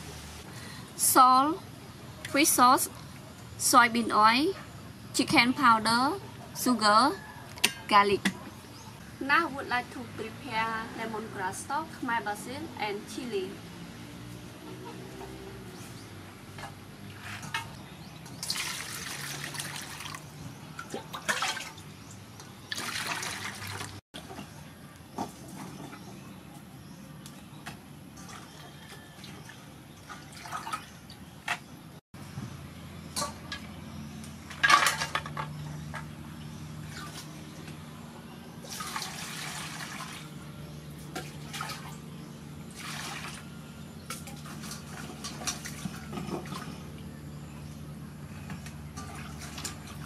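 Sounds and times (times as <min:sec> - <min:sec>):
water splashing and dripping: 0:16.6 - 0:24.4, 0:27.2 - 0:31.6, 0:38.6 - 0:47.0
water pouring: 0:18.4 - 0:21.8, 0:22.7 - 0:24.0, 0:38.6 - 0:40.3, 0:42.7 - 0:43.4.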